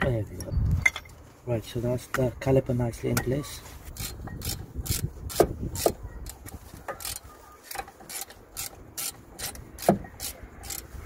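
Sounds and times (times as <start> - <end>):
ratchet clicking: 4.0 - 11.0.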